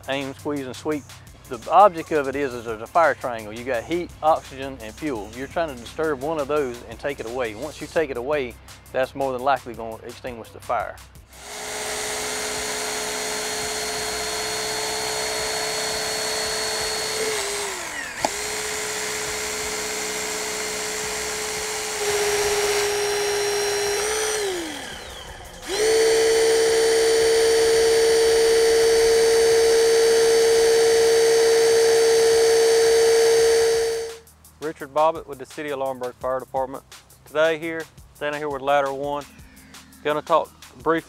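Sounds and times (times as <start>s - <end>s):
hydraulic pump whine: 11.2s - 34.3s.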